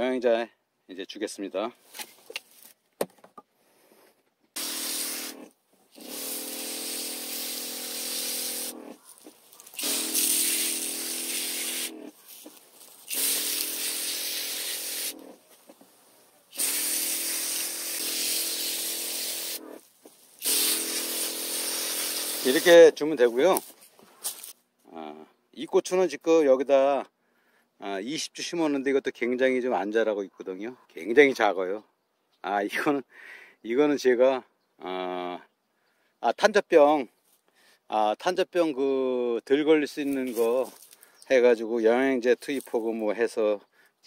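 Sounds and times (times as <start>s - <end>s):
sprayer hissing: 4.6s - 15.8s, 16.5s - 23.4s.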